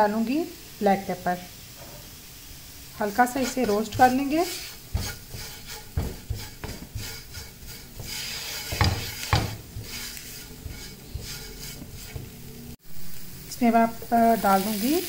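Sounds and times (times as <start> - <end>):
faint sizzle: 0.0 - 15.0
spatula scraping frying pan: 3.0 - 12.8.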